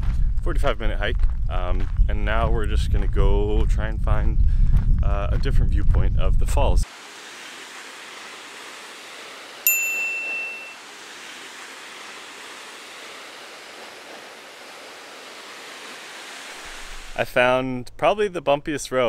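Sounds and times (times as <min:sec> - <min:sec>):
waterfall rushing: 0:06.8 - 0:17.2
high bright ding: 0:09.6 - 0:10.8.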